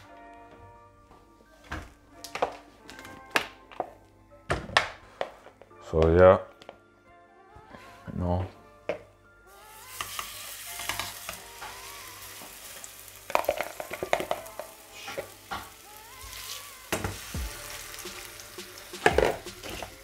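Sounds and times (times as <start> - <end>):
fish sizzling in hot oil: 9.5 - 20.0.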